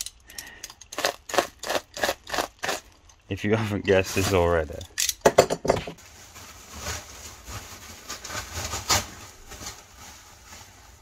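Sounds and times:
packaging rustling and scraping: 0:03.7 - 0:04.8, 0:05.8 - 0:11.0.

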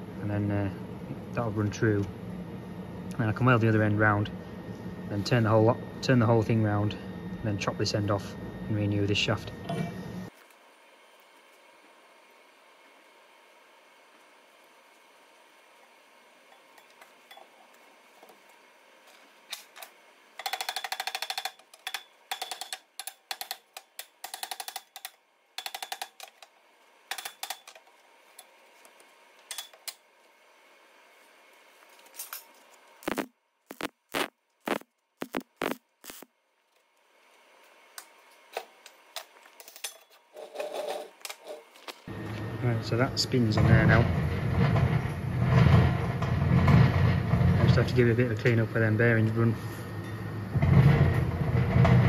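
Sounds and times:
tape pulled off roll crackling: 0:31.7 - 0:37.0.

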